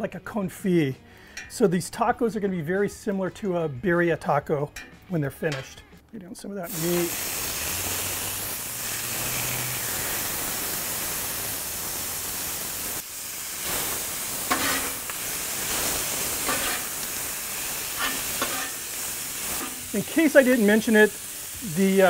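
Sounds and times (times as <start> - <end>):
steak sizzling on a griddle: 6.7 - 22.0
metal spatula scraping griddle: 13.7 - 17.1, 17.8 - 20.0.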